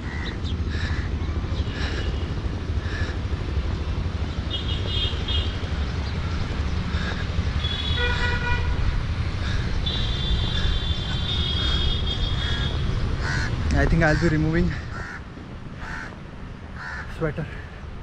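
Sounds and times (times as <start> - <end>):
vehicle horn toot: 4.5 - 5.6, 7.6 - 8.9, 9.8 - 12.8.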